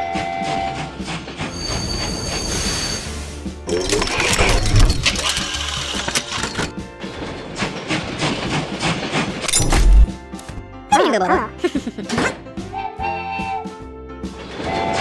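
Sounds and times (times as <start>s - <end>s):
locomotive buffers thumping: 0.0s - 2.6s, 3.3s - 10.6s
background music: 0.0s - 15.0s
rapid mechanical clicking and rattling: 3.7s - 9.5s.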